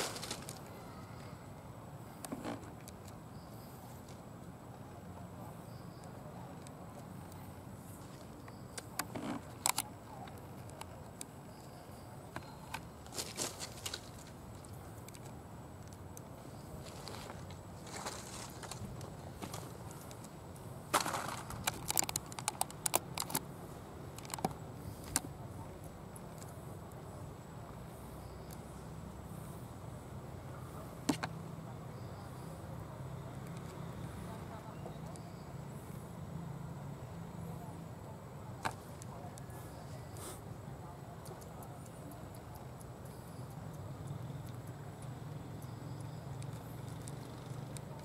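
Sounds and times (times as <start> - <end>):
faint steady background: 0.0 - 48.0
sharp little clicks: 21.0 - 25.3.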